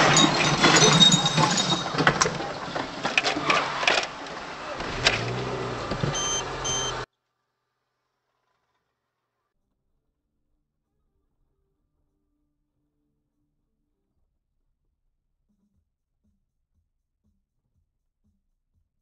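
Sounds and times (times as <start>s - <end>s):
sharp clicks and rattles: 0.0s - 7.0s
engine and road hum: 0.0s - 7.1s.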